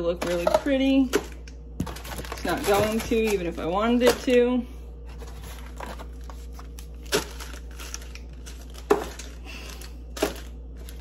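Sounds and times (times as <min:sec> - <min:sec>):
plastic packets crinkling: 0:00.2 - 0:11.0.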